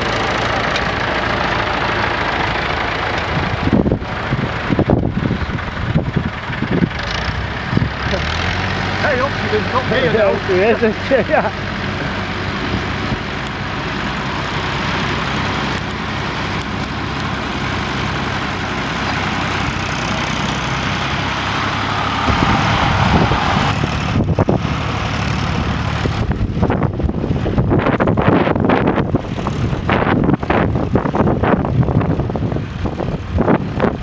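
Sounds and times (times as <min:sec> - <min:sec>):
tractor engine running: 0:00.0 - 0:34.0
wind buffeting microphone: 0:02.6 - 0:08.9, 0:19.5 - 0:34.0.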